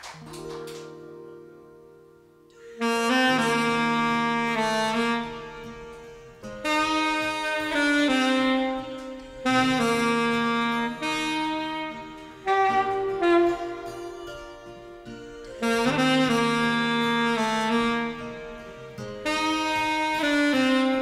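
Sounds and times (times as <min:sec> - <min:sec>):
alto saxophone melody: 0:00.3 - 0:21.0.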